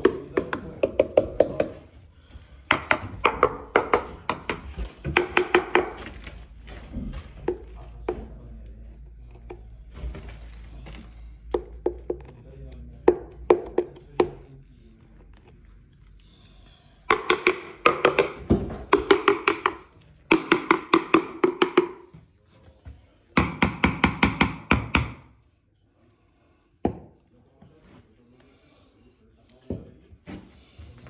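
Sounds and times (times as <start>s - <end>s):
rapid hollow knocking: 2.7s - 6.0s, 17.1s - 22.1s.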